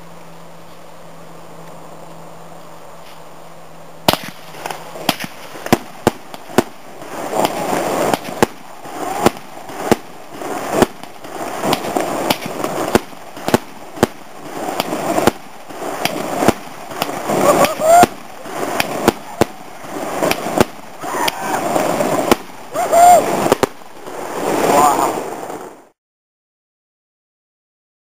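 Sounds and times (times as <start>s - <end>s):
firework hissing rush: 0.0s - 26.0s
firework bangs: 4.0s - 26.0s.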